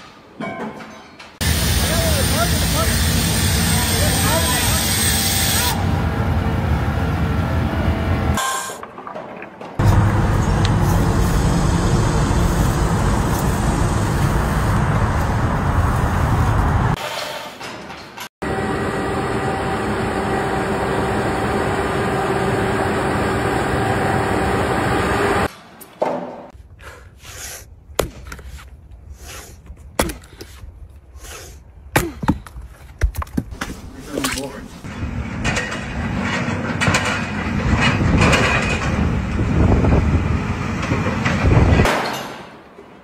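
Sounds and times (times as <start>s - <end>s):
loud low rumbling: 9.8s - 17.0s
axe striking wood: 28.0s - 28.5s, 30.0s - 30.4s.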